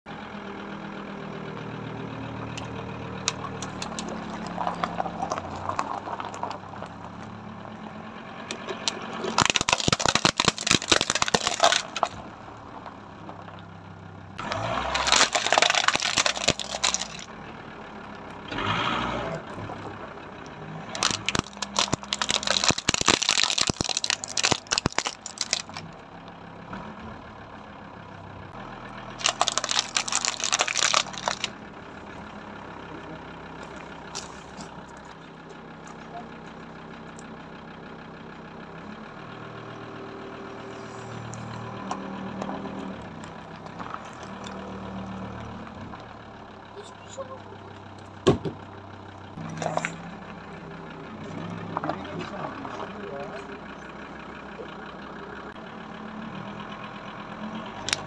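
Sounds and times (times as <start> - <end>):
car engine idling: 0.1 - 58.0
plastic cracking under tyre: 8.7 - 12.2, 14.5 - 17.3, 20.9 - 25.9, 29.2 - 31.6.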